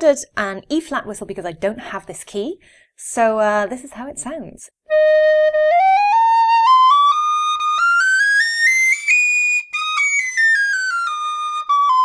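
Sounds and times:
tin whistle playing a scale: 0:04.9 - 0:12.0.

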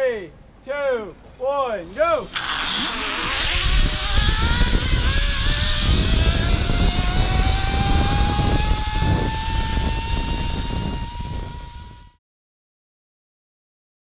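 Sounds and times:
zip line pulleys whining: 0:02.2 - 0:12.2
wind rumble on microphone: 0:02.4 - 0:12.2.

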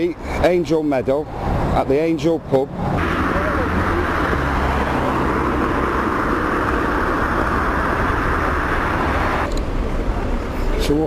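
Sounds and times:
street traffic noise: 0:00.0 - 0:11.0.

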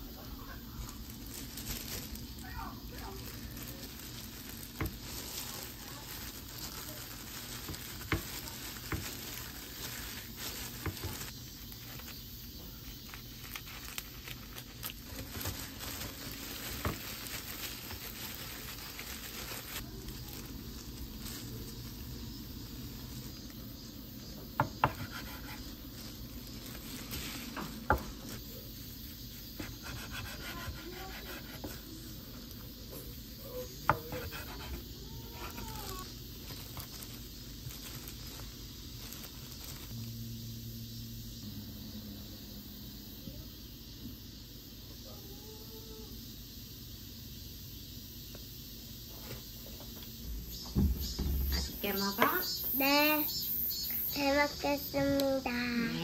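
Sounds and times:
plastic gloves rustling: 0:00.0 - 0:24.0, 0:24.6 - 0:30.1, 0:31.0 - 0:40.1
dried seaweed crackling: 0:00.0 - 0:40.1.

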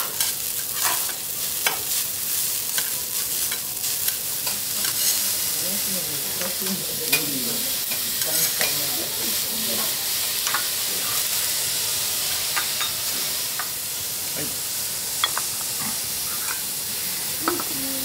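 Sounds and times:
rice sizzling on a griddle: 0:00.0 - 0:18.0
metal spatulas scraping and clicking: 0:00.1 - 0:01.8.

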